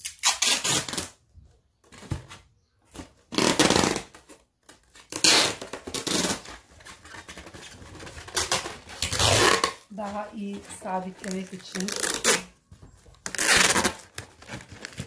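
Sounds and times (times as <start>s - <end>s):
packing tape pulled off roll: 0.0s - 1.2s, 3.3s - 9.9s, 10.6s - 12.6s, 13.2s - 15.0s.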